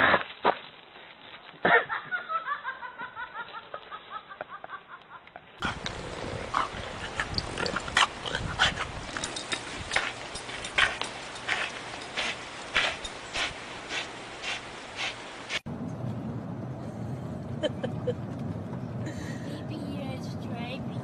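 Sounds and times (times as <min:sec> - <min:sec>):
person laughing: 0:01.6 - 0:05.2, 0:17.5 - 0:18.3
rustling: 0:05.6 - 0:15.6.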